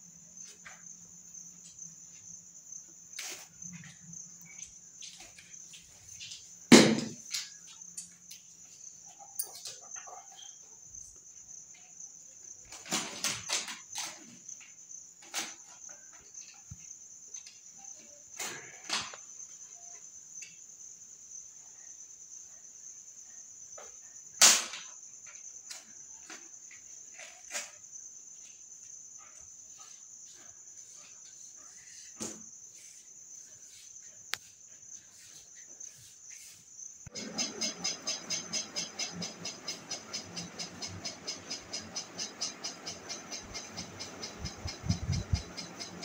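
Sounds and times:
fast even pulsing: 0:37.1 - 0:46.0.

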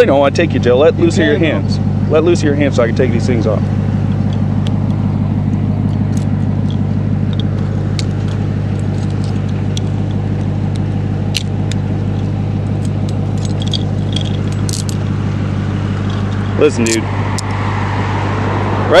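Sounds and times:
vehicle engine idling: 0:00.0 - 0:19.0
handcuffs clicking and jingling: 0:05.8 - 0:15.1.

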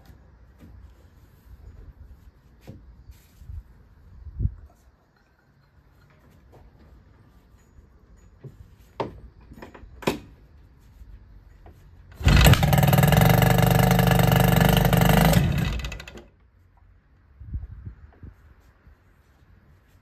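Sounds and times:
outboard engine running: 0:12.2 - 0:16.1.

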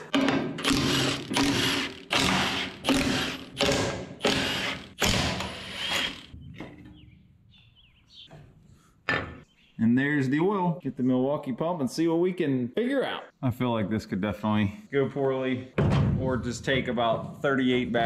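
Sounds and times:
impact wrench hammering: 0:00.1 - 0:06.3.

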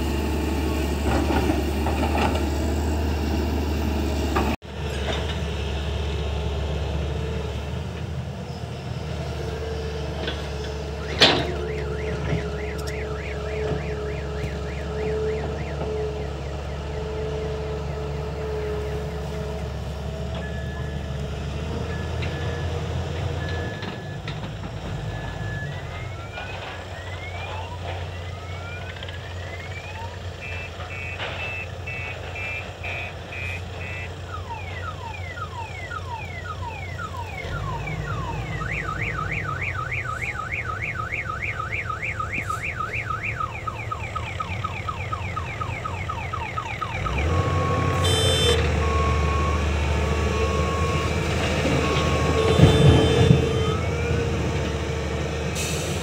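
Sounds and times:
excavator diesel engine running: 0:00.0 - 0:56.0
electronic alarm: 0:11.4 - 0:17.2, 0:29.4 - 0:49.7, 0:51.8 - 0:54.0
short beep: 0:30.4 - 0:34.1, 0:47.6 - 0:49.6.

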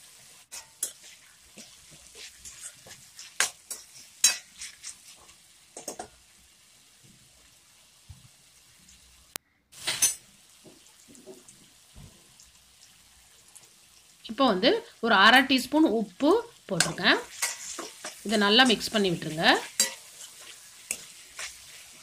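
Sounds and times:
faint frying: 0:00.0 - 0:22.0
metal spoon scraping a pan: 0:00.5 - 0:06.1, 0:16.8 - 0:22.0.

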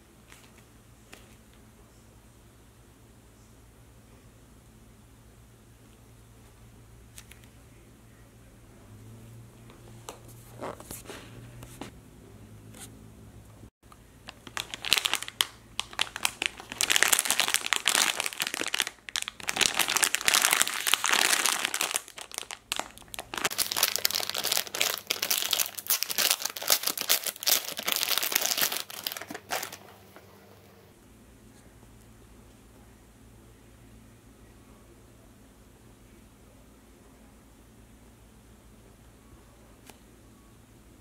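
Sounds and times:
plastic packaging crinkling: 0:14.2 - 0:30.2.

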